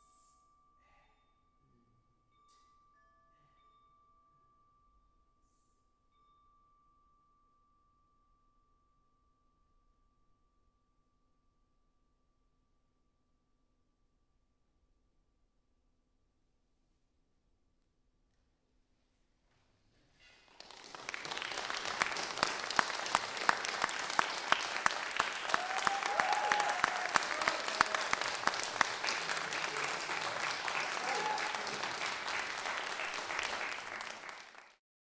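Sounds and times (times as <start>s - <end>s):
audience applauding: 20.5s - 34.8s
close sharp hand claps: 20.5s - 34.8s
person cheering: 23.6s - 34.1s.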